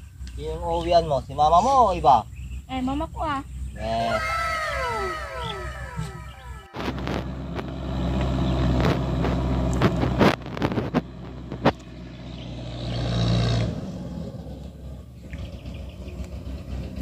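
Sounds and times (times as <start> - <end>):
motor engine running: 5.2 - 17.0.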